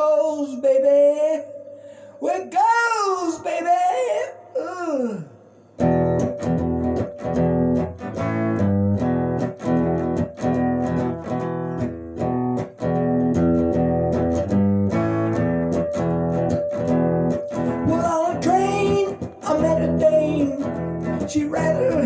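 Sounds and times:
electric guitar boogie riff: 5.8 - 22.0.

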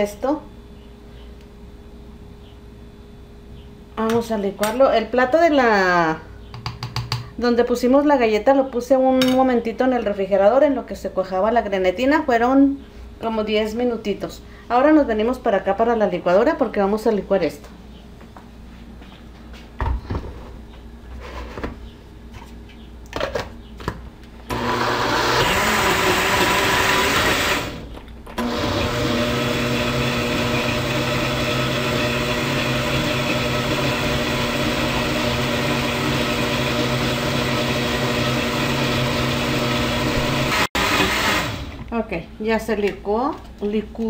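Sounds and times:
blender motor blending liquid: 24.5 - 27.8, 28.4 - 41.8.

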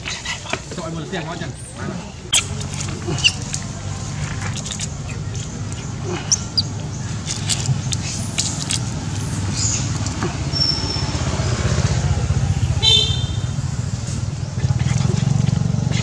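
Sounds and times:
small clicks: 7.2 - 9.0.

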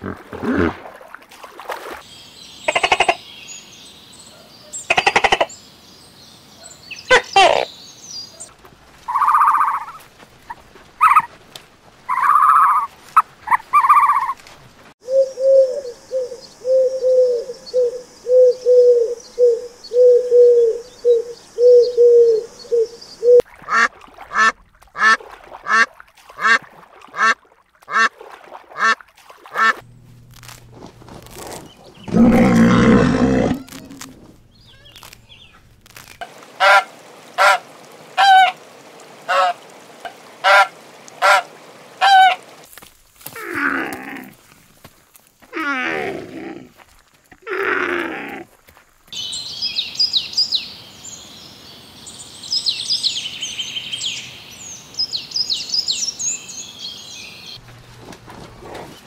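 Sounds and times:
animal calls: 31.5 - 35.4.

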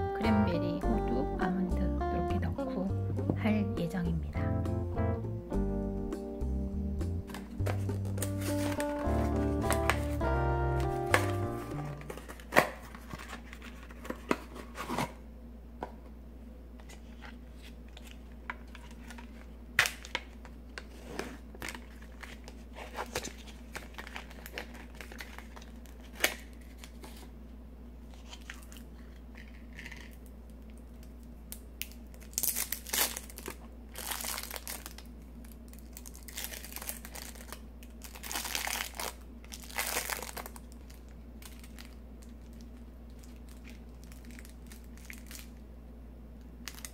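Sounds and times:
plastic wrap crinkling: 7.3 - 15.1, 17.0 - 27.3, 31.0 - 45.6, 46.6 - 46.9.

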